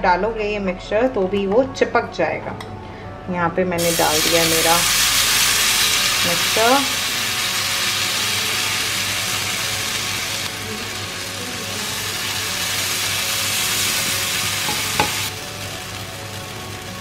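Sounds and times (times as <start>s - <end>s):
batter sizzling on hot griddle: 3.8s - 17.0s.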